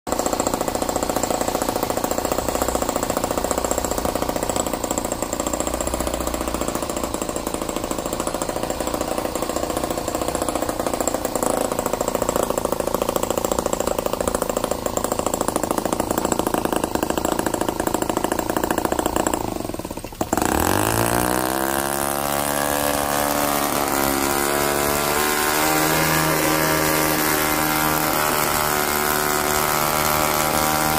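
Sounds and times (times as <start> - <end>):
model engine running: 0.1 - 30.9.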